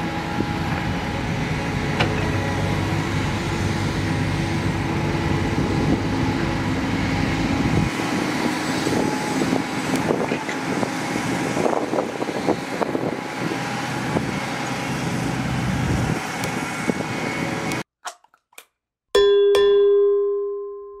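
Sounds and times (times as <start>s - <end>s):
excavator engines running: 0.0s - 17.9s
bright bell chime: 19.2s - 21.0s.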